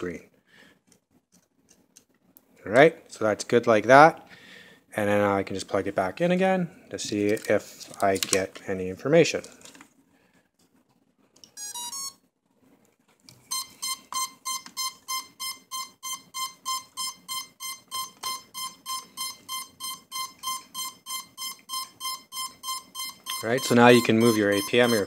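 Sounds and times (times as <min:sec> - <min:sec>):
quick repeating beep: 0:13.5 - 0:25.0.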